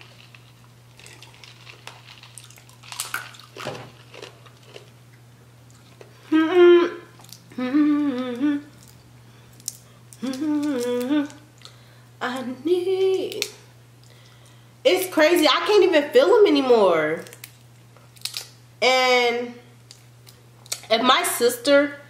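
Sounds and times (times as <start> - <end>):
woman humming: 6.2 - 8.8, 10.2 - 11.5, 12.2 - 13.4
shells being peeled: 17.2 - 18.6.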